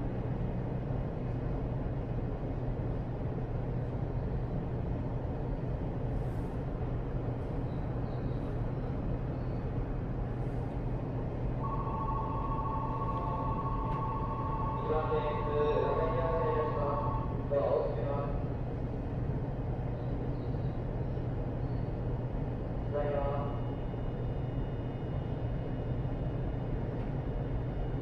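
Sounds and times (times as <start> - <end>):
stopped train low hum: 0.0 - 28.0
two-note electronic tone: 11.6 - 15.1.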